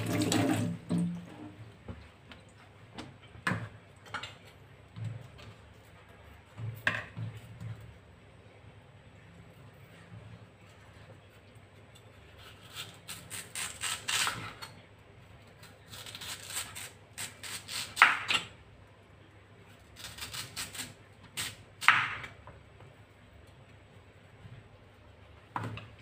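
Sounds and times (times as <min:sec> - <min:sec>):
knife slicing yam: 0:12.4 - 0:14.7, 0:15.6 - 0:18.5, 0:20.0 - 0:22.3.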